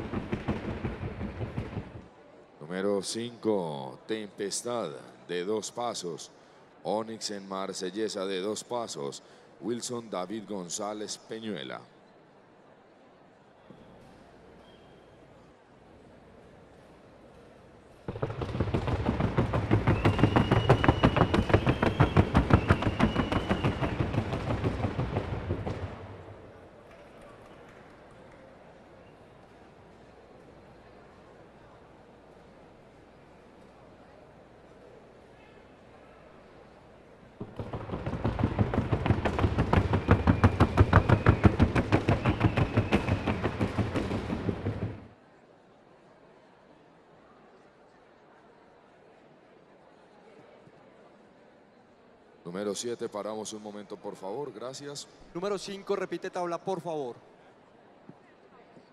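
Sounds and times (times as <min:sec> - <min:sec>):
hoofbeats drumming on wooden board: 0:00.0 - 0:02.0, 0:18.1 - 0:26.2, 0:37.4 - 0:45.1.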